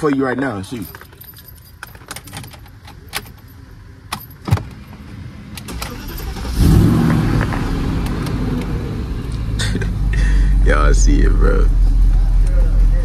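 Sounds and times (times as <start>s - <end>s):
keys jangling: 0.7s - 4.6s
car engine revving: 5.0s - 13.0s.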